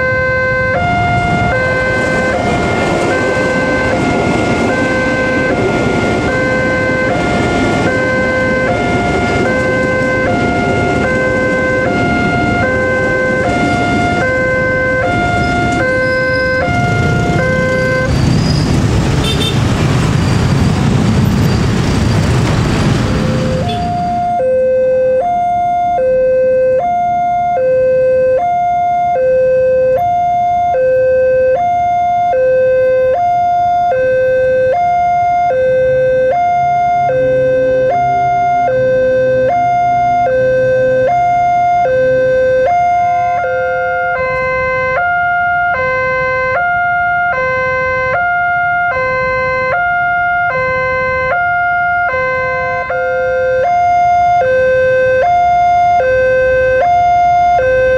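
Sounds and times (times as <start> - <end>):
vehicle engine hum: 0.0 - 25.8.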